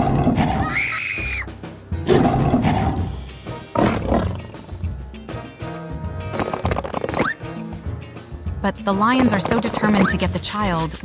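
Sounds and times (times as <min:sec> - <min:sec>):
lion roaring: 0:00.0 - 0:00.8, 0:02.0 - 0:04.5
cartoon background music: 0:00.0 - 0:11.0.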